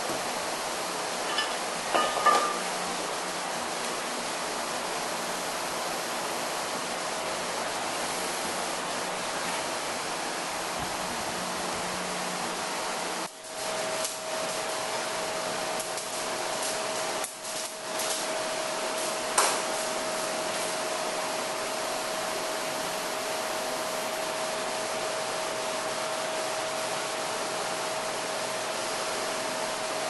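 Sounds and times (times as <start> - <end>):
room noise hiss: 0.0 - 30.0
sharp metal clank: 1.3 - 2.7.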